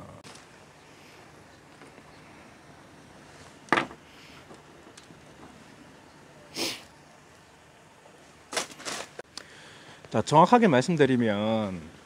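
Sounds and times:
faint background hiss: 0:00.0 - 0:12.0
nose sniff: 0:06.5 - 0:06.9.

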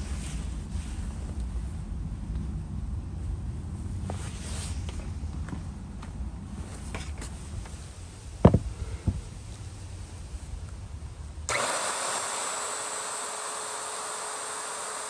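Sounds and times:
wood router running: 0:11.5 - 0:15.0.

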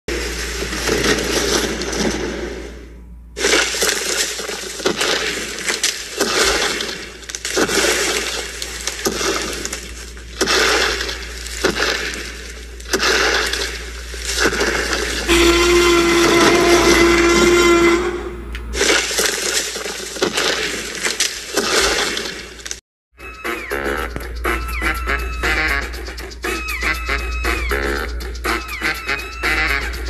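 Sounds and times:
steady low hum: 0:00.1 - 0:19.5
crunching and crackling snaps: 0:03.4 - 0:15.3, 0:18.8 - 0:22.8.

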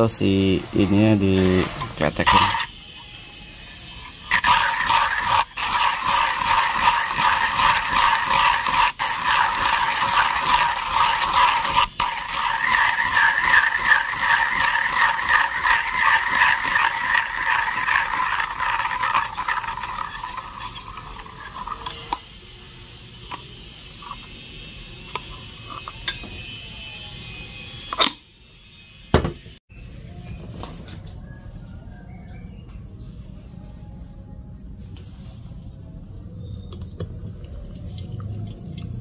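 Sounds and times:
hand coffee grinder crunching beans: 0:01.8 - 0:02.8, 0:03.9 - 0:22.3, 0:23.3 - 0:24.4.

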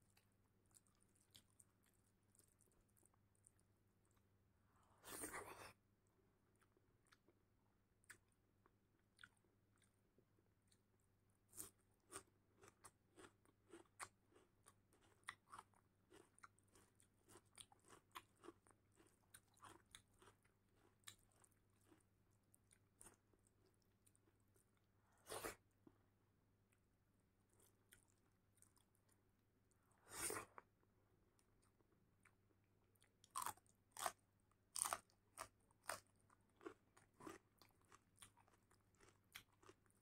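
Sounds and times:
chewing and mouth clicks: 0:00.1 - 0:04.2, 0:34.8 - 0:40.0.

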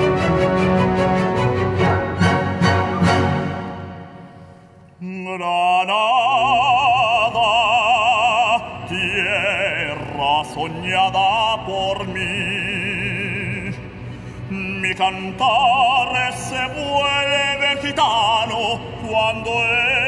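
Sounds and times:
orchestra playing: 0:00.0 - 0:05.0
operatic tenor singing: 0:05.0 - 0:20.0.

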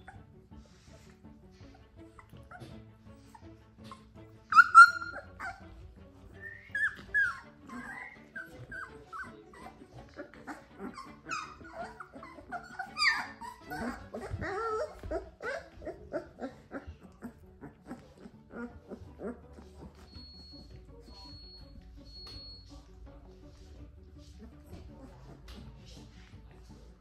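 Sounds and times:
puppies whining and yipping: 0:00.0 - 0:00.4, 0:01.6 - 0:22.8
puppy yelps: 0:03.8 - 0:05.6, 0:06.4 - 0:17.3.

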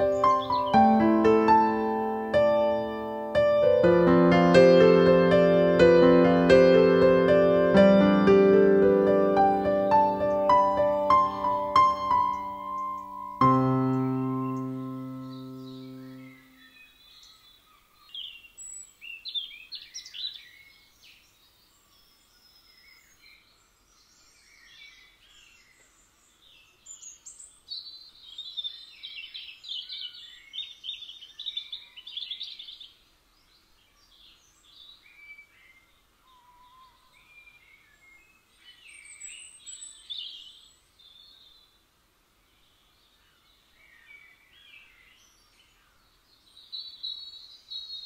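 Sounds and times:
digital piano chord: 0:00.0 - 0:16.5
small birds singing: 0:00.0 - 0:48.0.

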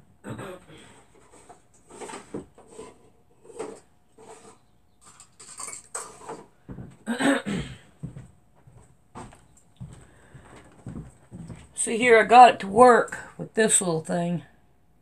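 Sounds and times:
hard objects clinking on tabletop: 0:05.0 - 0:06.4.

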